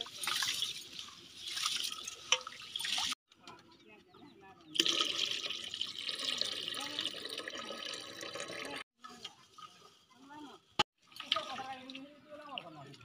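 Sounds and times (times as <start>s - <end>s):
water pouring into metal pot: 4.8s - 9.7s, 11.0s - 12.7s.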